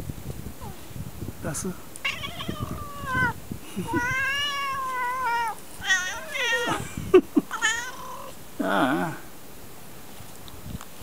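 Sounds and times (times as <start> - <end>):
cat meowing: 2.0 - 6.8, 7.5 - 8.4.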